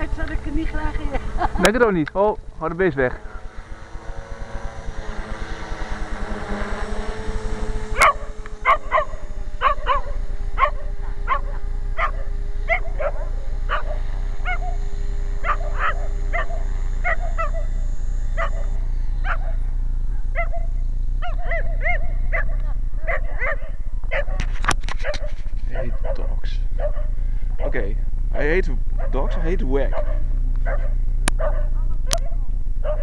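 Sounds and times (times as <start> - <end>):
electric helicopter whine: 0.0 - 33.0
dog barking: 8.0 - 14.6, 20.4 - 24.4, 25.0 - 27.8, 29.9 - 33.0.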